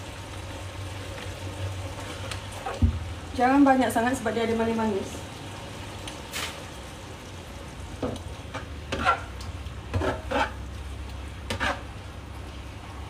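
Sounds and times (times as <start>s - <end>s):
noodles sizzling in a wok: 0.0s - 13.0s
spatula scraping a pan: 8.5s - 10.7s, 11.4s - 12.0s.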